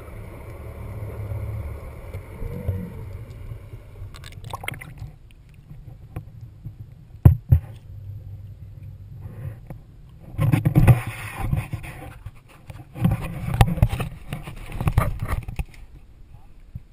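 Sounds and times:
low steady rumble: 0.0 - 16.9
camera handling rubbing and scraping: 10.3 - 15.8.

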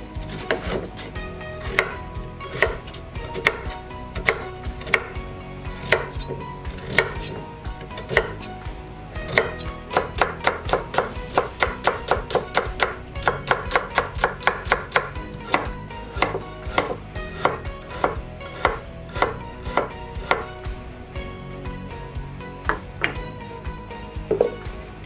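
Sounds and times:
knife chopping on wooden board: 0.2 - 5.2, 5.8 - 7.4, 8.0 - 8.5, 9.3 - 20.5, 22.6 - 23.2, 24.3 - 24.6.

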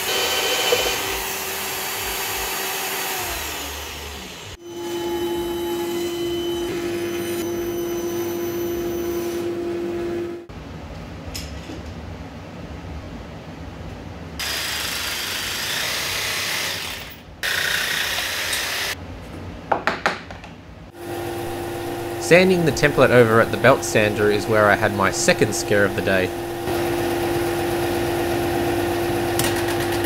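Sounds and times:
band saw humming: 21.0 - 27.8.

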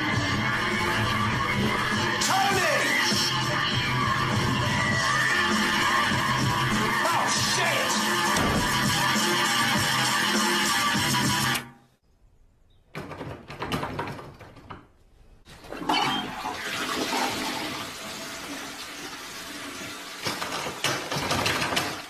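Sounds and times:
toilet flushing: 0.0 - 9.9, 15.5 - 22.0.

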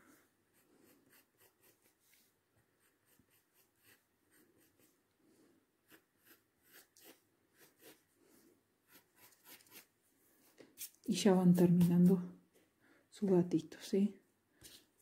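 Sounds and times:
pencil scratching on paper: 0.5 - 5.0, 5.8 - 8.1, 8.8 - 12.2.

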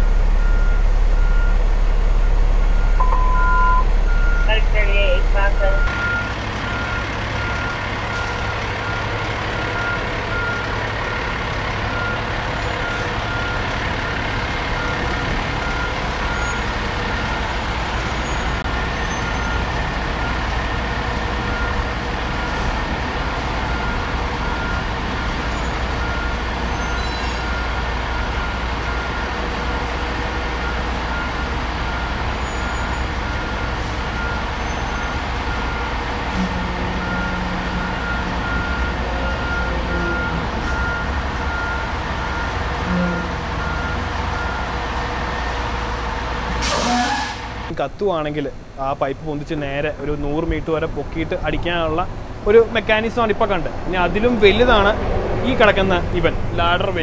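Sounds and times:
reversing alarm beeping: 0.0 - 17.5, 23.6 - 29.9, 30.6 - 44.7
fire engine running: 0.0 - 57.0.

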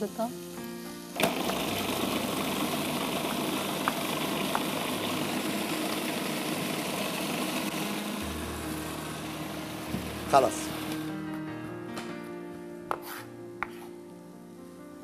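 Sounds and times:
blender motor whirring: 1.2 - 11.1.

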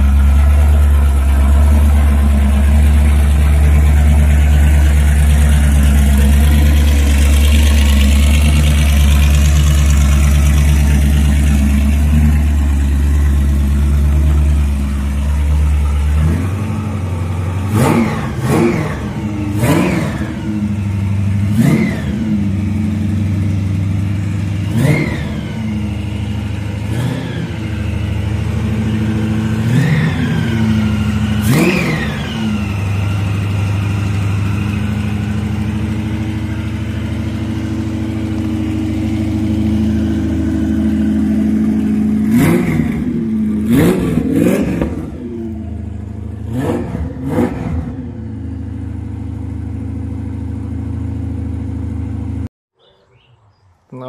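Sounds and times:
car engine idling and revving: 0.0 - 52.5.

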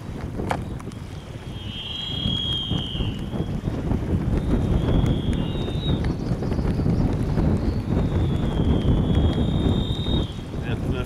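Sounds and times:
wind buffeting microphone: 0.0 - 11.0
faint high whine: 1.1 - 3.6.

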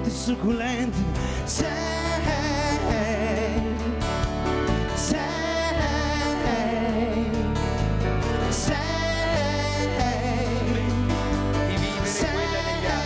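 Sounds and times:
electric guitar: 0.0 - 13.0
low band accompaniment: 0.0 - 13.0
woman singing with vibrato: 0.1 - 4.1, 5.0 - 7.7.

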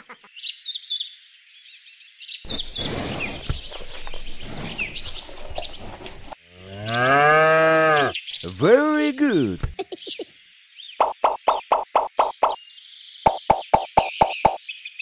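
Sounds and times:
small birds chirping: 0.0 - 15.0
outdoor background hiss: 1.0 - 11.0.

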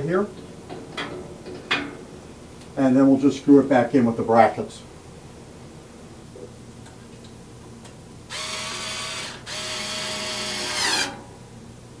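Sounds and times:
cordless drill driving screws: 8.3 - 11.2.

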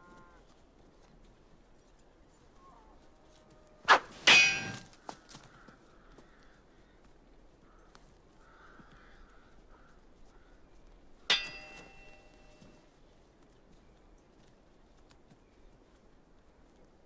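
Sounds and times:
sword blades clashing: 3.9 - 4.9, 11.3 - 12.4.

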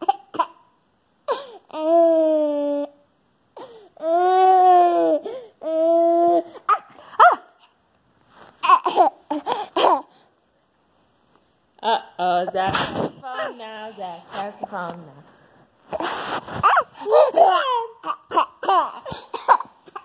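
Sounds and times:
baby laughing: 8.6 - 10.1, 16.6 - 20.0.

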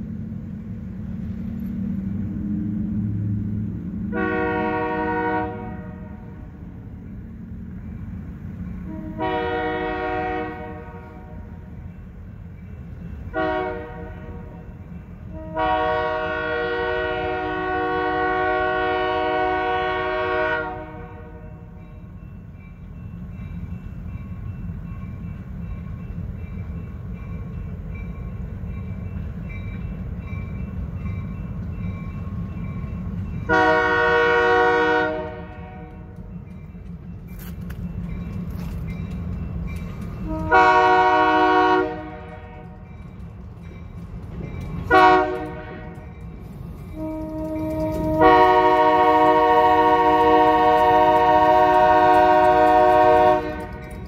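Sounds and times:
locomotive air horn blasts: 4.1 - 6.5, 8.8 - 11.6, 13.3 - 14.6, 15.3 - 21.5, 33.5 - 36.2, 40.2 - 42.7, 44.9 - 46.0, 46.9 - 53.9.

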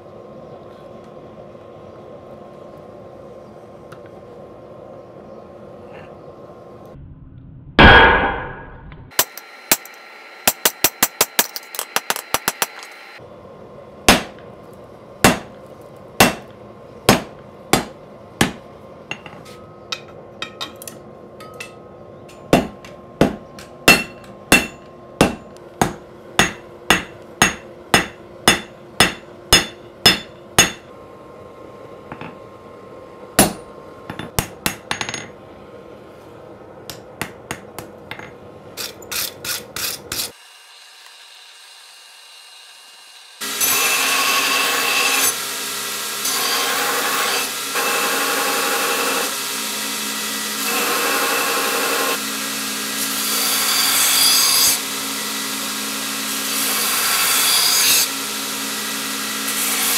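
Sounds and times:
hammer striking steel on anvil: 7.8 - 13.0, 14.1 - 14.4, 15.2 - 15.6, 16.2 - 16.5, 17.1 - 30.9, 33.4 - 35.4, 36.9 - 40.3
gas forge roaring: 12.4 - 39.1.

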